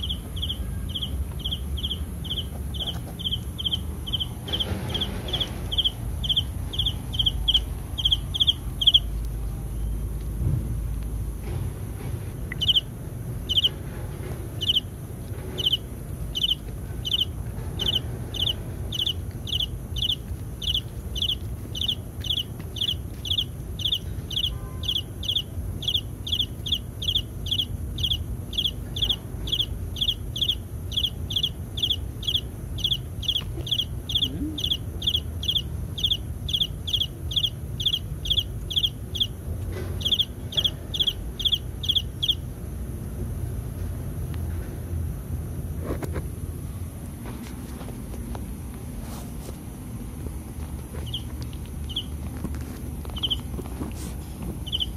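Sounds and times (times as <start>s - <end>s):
high-pitched chirp: 0.0s - 10.1s, 12.5s - 12.9s, 15.6s - 39.4s, 40.0s - 42.4s, 54.7s - 54.9s.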